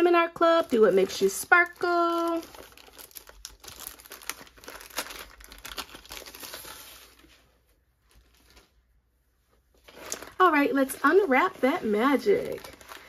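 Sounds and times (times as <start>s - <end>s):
plastic pouch crinkling: 0.4s - 7.4s, 9.8s - 13.0s.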